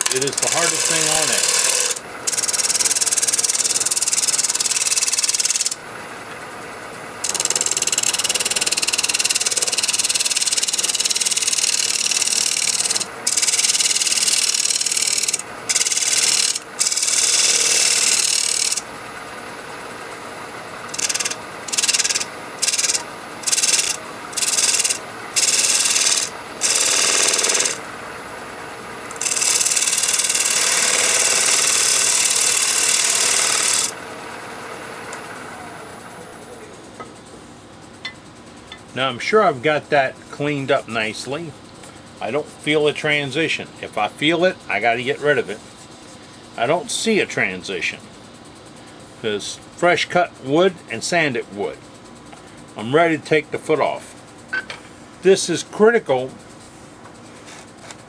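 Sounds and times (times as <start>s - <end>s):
air-powered sander hissing: 0.0s - 5.8s, 7.2s - 18.9s, 20.8s - 27.9s, 29.1s - 34.6s
wood lathe running: 0.0s - 5.8s, 7.2s - 28.1s, 28.8s - 36.0s.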